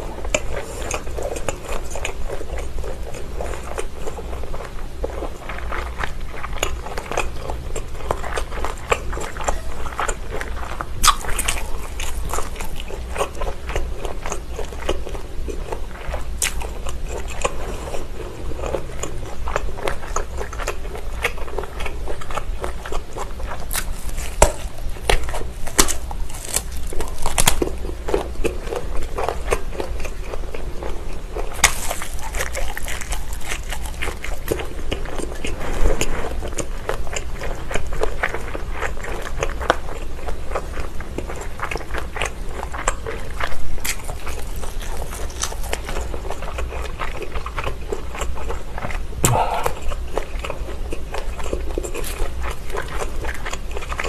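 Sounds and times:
chewing: 0.0 - 54.0
biting through sausage casings: 5.4 - 54.0
mouth clicks: 49.2 - 50.0.

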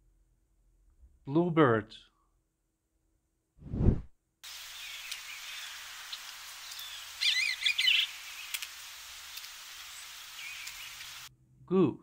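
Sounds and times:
field recording hiss: 4.4 - 11.3
bird singing: 4.6 - 8.6, 9.2 - 11.3.

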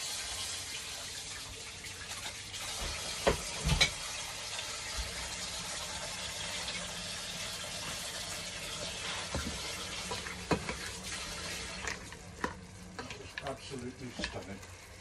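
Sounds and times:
pot simmering with watery hiss: 0.0 - 15.0
spoon stirring food in pot: 9.0 - 14.4.

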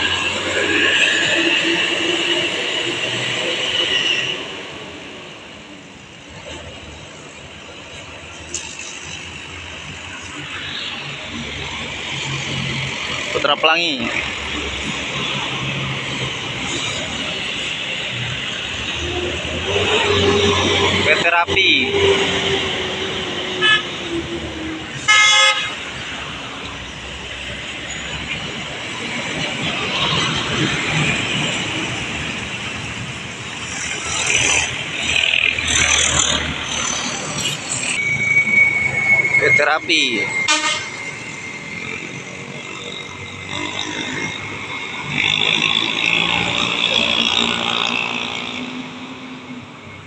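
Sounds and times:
bus engine driving away: 0.0 - 50.0
passing road traffic: 0.0 - 50.0
vehicle horn blast: 23.6 - 23.9, 25.0 - 25.8, 40.4 - 41.0.

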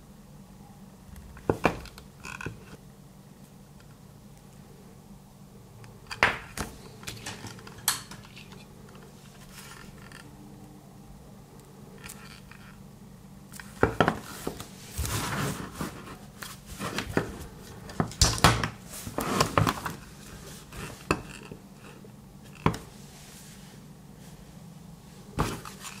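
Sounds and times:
rustling handling noise: 6.5 - 10.2, 13.5 - 26.0.

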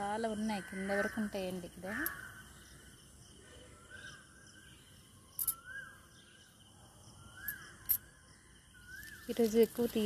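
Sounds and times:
bird whistling calls: 7.2 - 8.0.

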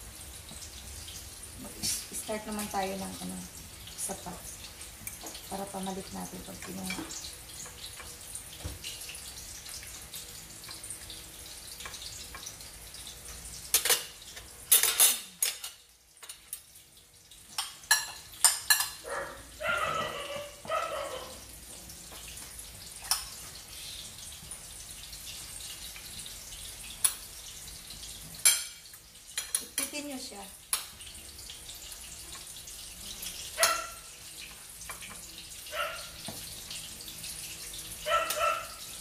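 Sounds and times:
utensils clinking against dishes: 13.7 - 16.7, 17.6 - 19.1, 28.4 - 30.1.

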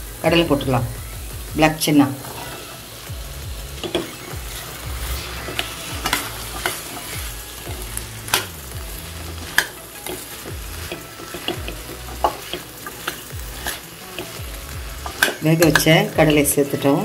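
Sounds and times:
spoon scraping steel pan: 3.8 - 8.5, 9.4 - 14.4, 15.0 - 16.6.

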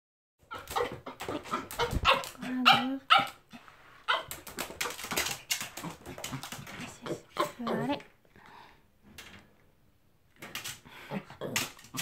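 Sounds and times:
small dog yapping: 0.5 - 3.4, 4.1 - 5.0.

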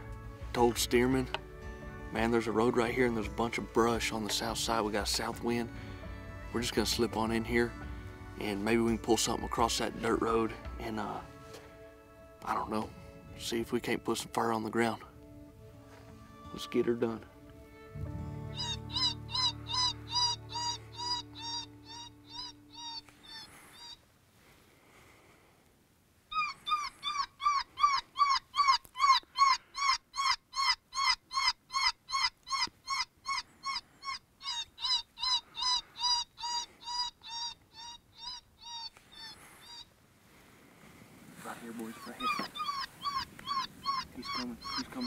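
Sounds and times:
predator call wailing squeals: 18.5 - 24.0, 26.3 - 39.9, 41.6 - 45.0.

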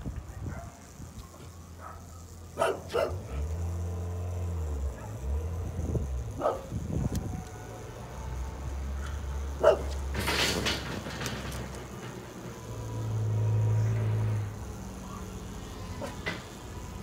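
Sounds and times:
dog barking: 0.3 - 0.8, 1.8 - 3.4, 4.9 - 5.2, 6.4 - 6.7, 9.0 - 10.0.

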